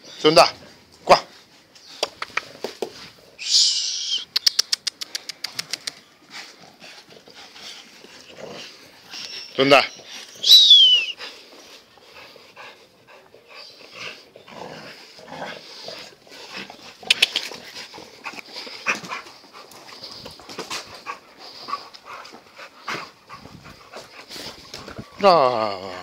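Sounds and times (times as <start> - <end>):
sharp clicks: 4.3 - 6.0
dog panting: 5.0 - 10.4, 11.1 - 25.7.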